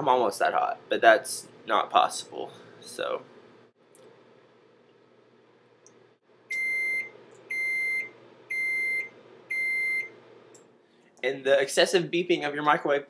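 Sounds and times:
microwave oven beeps: 6.5s - 10.2s.

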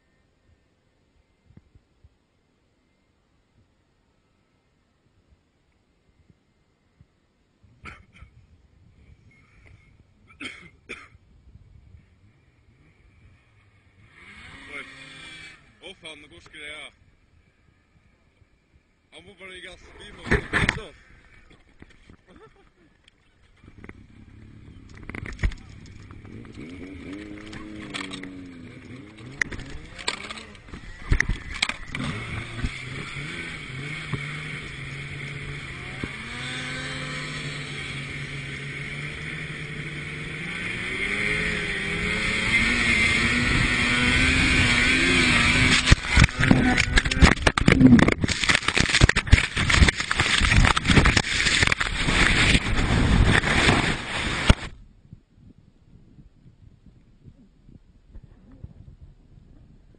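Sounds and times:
snowmobile engine revving: 12.7s - 17.9s, 24.0s - 54.7s.

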